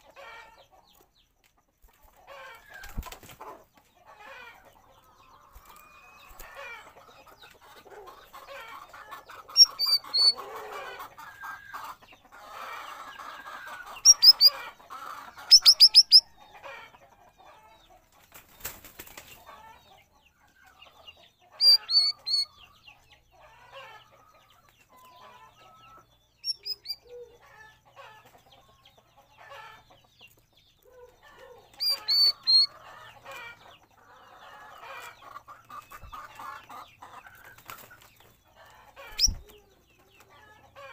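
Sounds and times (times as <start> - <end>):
bulbul whistled calls: 9.5 - 10.4, 13.9 - 14.6, 15.4 - 16.3, 21.6 - 22.6, 26.4 - 27.3, 31.7 - 32.8, 39.0 - 39.5.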